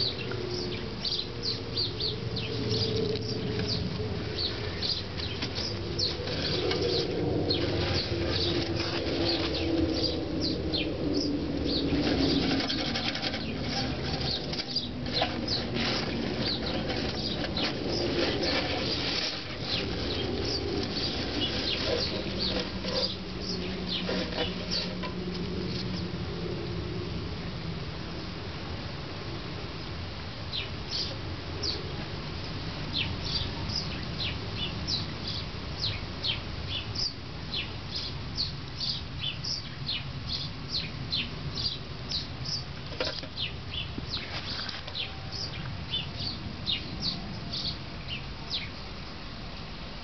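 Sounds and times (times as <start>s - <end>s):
rustling through leafy plants: 0.0s - 26.4s, 42.4s - 48.7s
low handling rumble: 0.0s - 26.8s.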